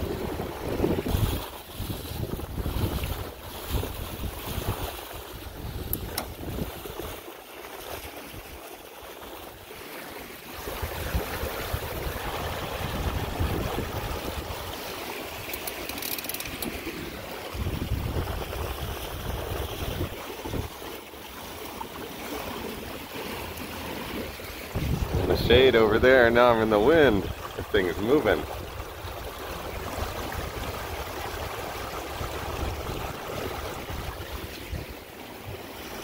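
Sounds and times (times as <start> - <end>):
wind gusting on microphone: 0.0 - 6.9, 10.6 - 14.8, 17.5 - 20.7, 24.7 - 35.0
water splashing along boat hull: 0.0 - 36.0.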